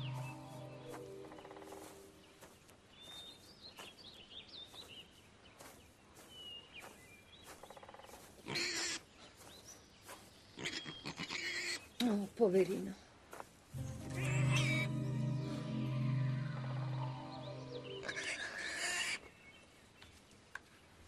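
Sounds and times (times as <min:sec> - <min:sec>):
rustling in undergrowth: 0:00.0 - 0:15.7.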